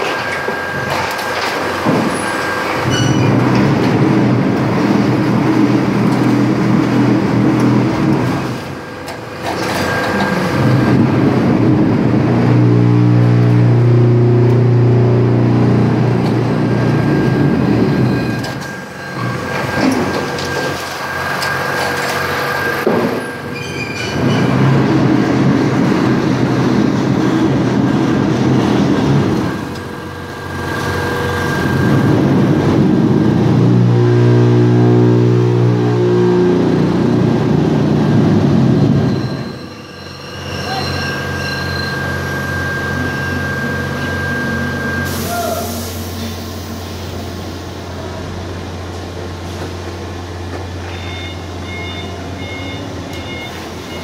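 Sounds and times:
machinery rumbling and clattering: 0.0s - 54.0s
pitched motor hum: 3.6s - 19.5s, 26.6s - 39.1s.

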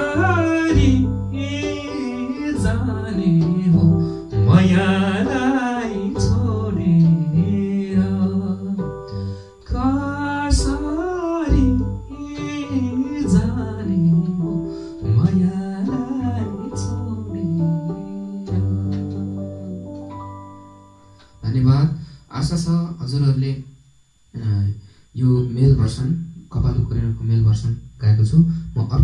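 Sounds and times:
regular drum beats: 0.0s - 7.7s, 9.7s - 14.4s
man singing with vibrato: 0.0s - 19.9s
electronic keyboard notes: 0.0s - 21.9s.

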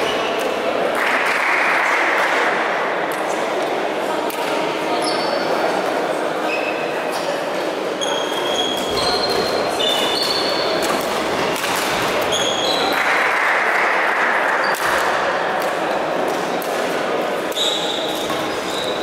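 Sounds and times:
reverberant din of busy hall: 0.0s - 19.0s
shoes squeaking on floor: 5.0s - 5.5s, 8.0s - 11.0s, 12.2s - 13.0s, 17.6s - 19.0s.

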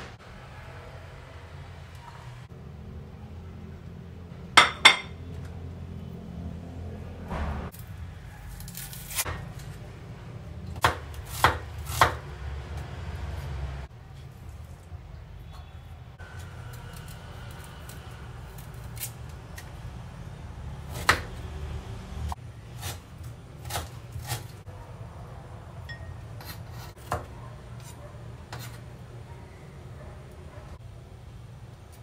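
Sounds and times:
knife chopping on wooden board: 10.8s - 12.2s, 23.6s - 24.5s.

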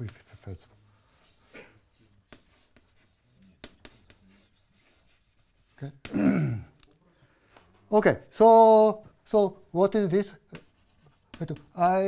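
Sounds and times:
chalk scratching on chalkboard: 0.0s - 6.1s, 10.3s - 12.0s.

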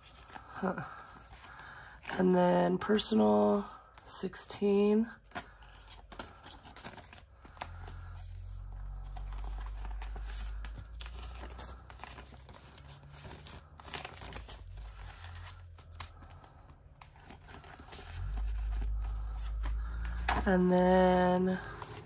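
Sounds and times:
banknotes rustling: 0.0s - 22.0s
low hum: 14.5s - 22.0s.

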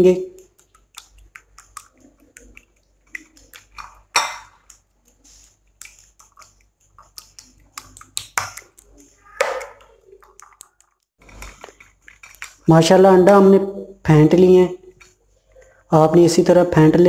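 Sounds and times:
whisk clicking against bowl: 0.1s - 12.7s.

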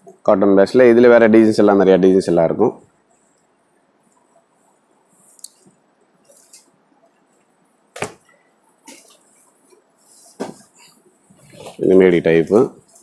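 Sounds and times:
fabric rustling: 6.1s - 13.0s.

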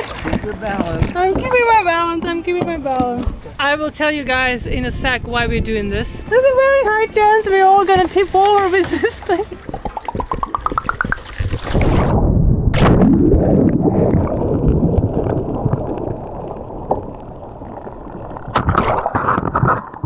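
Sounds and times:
muffled underwater bubbling: 9.6s - 12.1s, 12.8s - 20.0s
splash into water: 9.7s - 15.8s, 18.5s - 19.8s.

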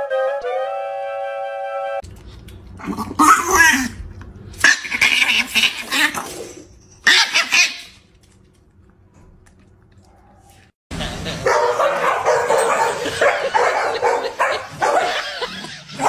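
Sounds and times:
person laughing and exclaiming: 10.9s - 11.5s, 12.8s - 16.0s.

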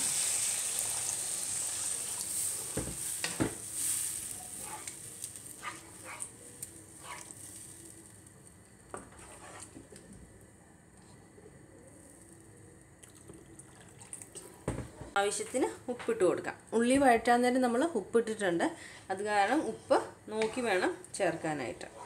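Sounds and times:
water sizzling in a hot pan: 0.0s - 8.3s
wooden spatula scraping a pan: 9.0s - 9.8s.

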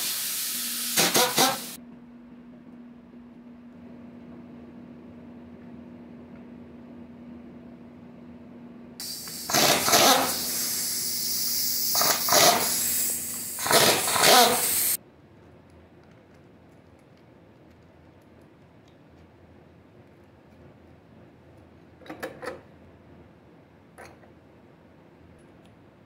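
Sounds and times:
air impact wrench hammering: 0.0s - 1.8s, 9.0s - 15.0s.

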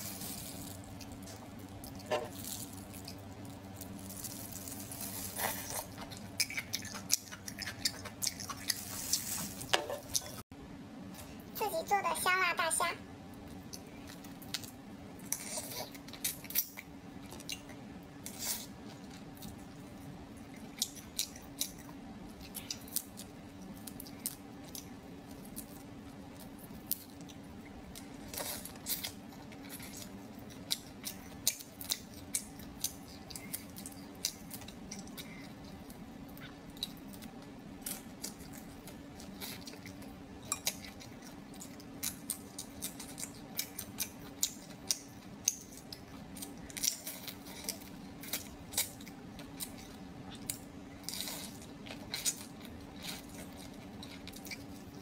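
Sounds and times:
prawn shells crackling: 0.0s - 7.0s
chewing: 0.0s - 10.4s, 13.4s - 55.0s.

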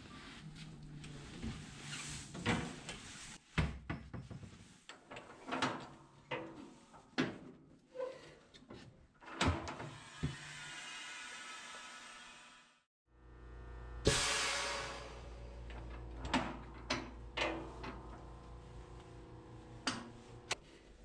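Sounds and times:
low steady hum: 13.2s - 21.0s.

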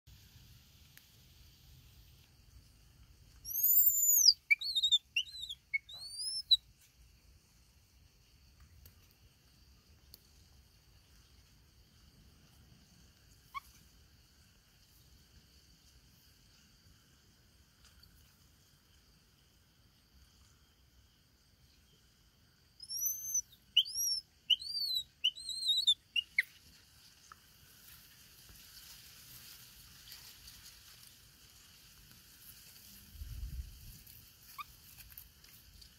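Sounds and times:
baby monkey whistle-like calls: 3.4s - 6.6s, 13.5s - 13.8s, 22.8s - 26.5s, 34.5s - 34.7s.

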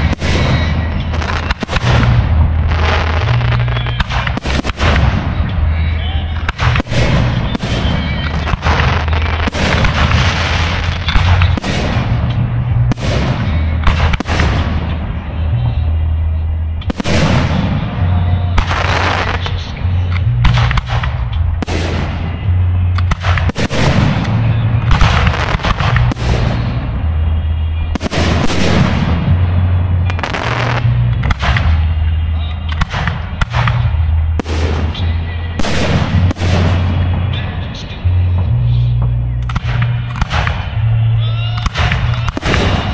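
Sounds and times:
fireworks crackling: 0.0s - 42.9s.

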